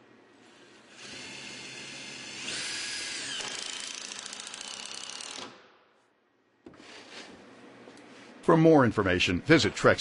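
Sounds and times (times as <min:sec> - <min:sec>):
cordless drill driving screw: 0:00.6 - 0:05.6.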